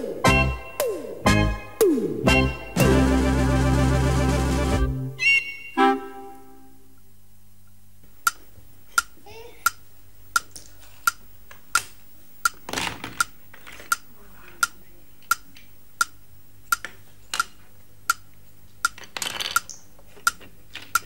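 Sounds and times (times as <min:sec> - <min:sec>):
clock ticking: 0:13.2 - 0:19.0
plastic building bricks clattering: 0:19.0 - 0:21.0.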